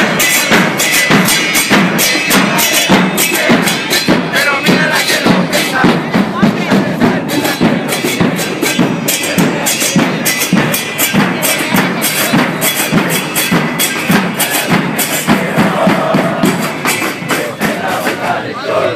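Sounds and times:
bass drums beating: 0.0s - 18.4s.

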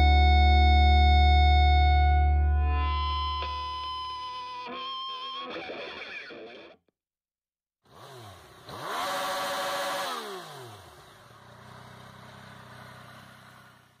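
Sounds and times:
motorcycle engine revving: 7.9s - 14.0s.

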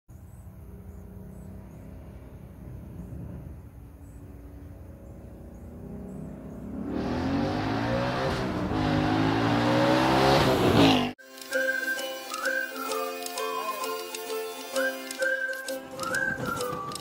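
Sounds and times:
car engine accelerating: 0.5s - 11.2s.

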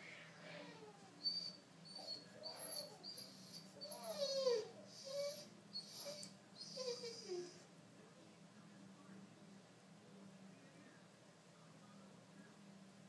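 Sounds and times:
dog whimpering: 0.4s - 7.6s.

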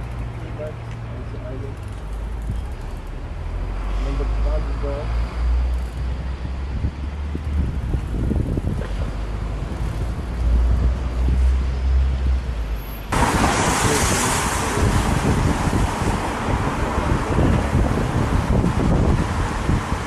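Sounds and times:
wind buffeting microphone: 5.4s - 12.4s, 13.1s - 20.0s.

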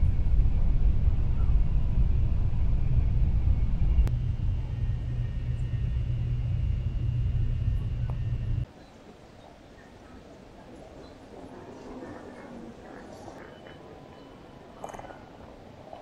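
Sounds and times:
train cabin rumble: 0.0s - 8.6s
faint high whine: 0.0s - 9.0s.

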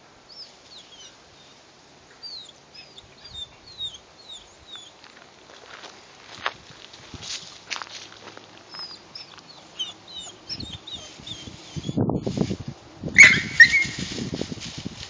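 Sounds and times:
small birds chirping: 0.0s - 5.3s, 8.2s - 12.2s
dog yelping: 8.8s - 12.0s, 13.2s - 14.0s.

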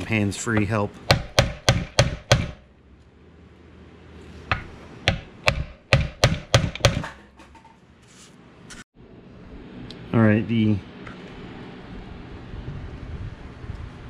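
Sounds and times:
hammer striking metal wheel: 0.5s - 2.7s, 4.5s - 7.8s.

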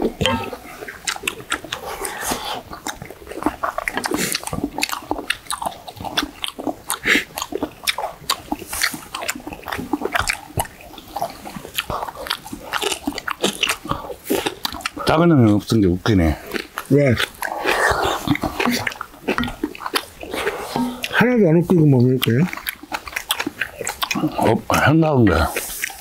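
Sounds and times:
slurping soup: 0.0s - 15.1s, 16.2s - 26.0s
chewing and mouth smacks: 0.0s - 26.0s.

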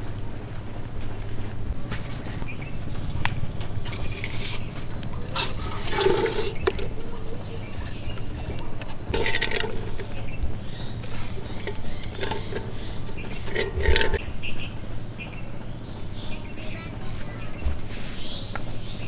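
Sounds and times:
steady low hum: 0.0s - 19.0s
scrapes and knocks: 3.8s - 14.2s
pot and plastic bottles set down: 9.1s - 10.0s.

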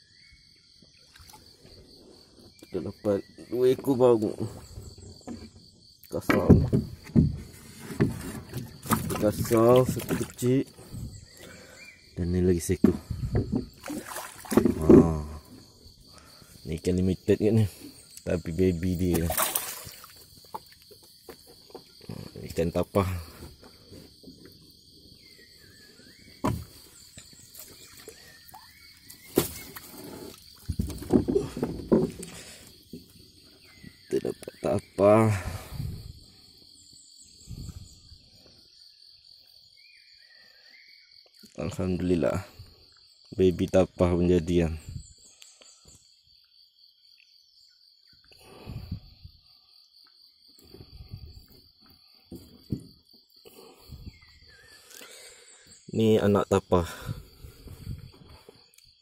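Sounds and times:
crickets chirring: 0.0s - 59.0s
water splashing: 8.5s - 10.5s, 13.7s - 14.9s, 19.0s - 20.2s.

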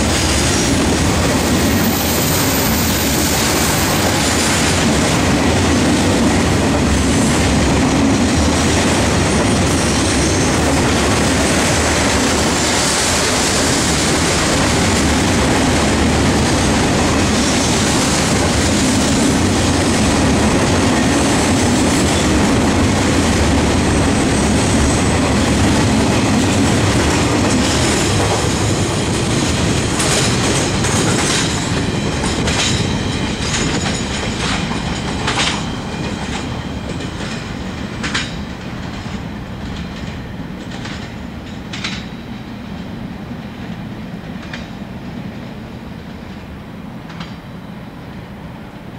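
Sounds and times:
freight train wheels on rail: 0.0s - 48.9s
train wheel clicks: 29.2s - 42.2s, 43.7s - 44.8s, 47.0s - 47.4s.

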